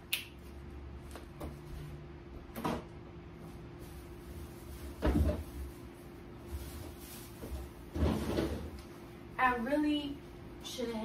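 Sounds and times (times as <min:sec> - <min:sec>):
refrigerator low hum: 0:00.0 - 0:11.0
knocks and rustles: 0:04.8 - 0:05.7, 0:06.5 - 0:08.8.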